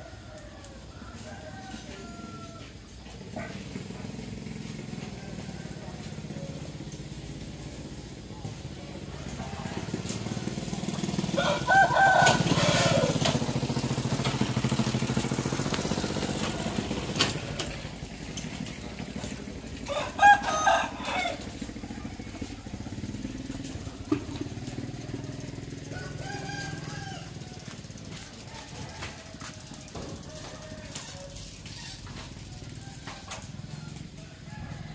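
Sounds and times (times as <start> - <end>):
rooster crowing: 0.0 - 3.0, 4.6 - 6.6, 9.1 - 14.7, 19.3 - 23.2, 24.6 - 31.8, 32.5 - 34.9
vehicle engine humming: 0.0 - 34.9.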